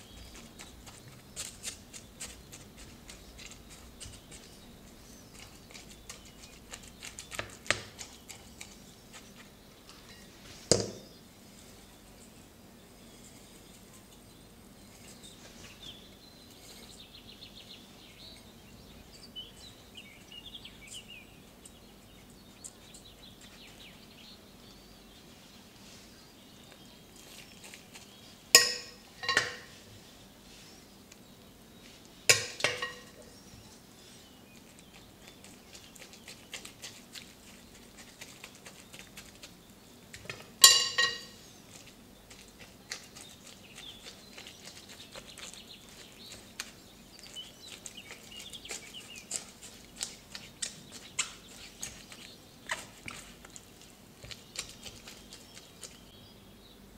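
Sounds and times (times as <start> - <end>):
faint bird chirping: 0.0 - 56.9
dishes clinking together: 28.6 - 29.7, 32.3 - 33.2, 40.6 - 41.4.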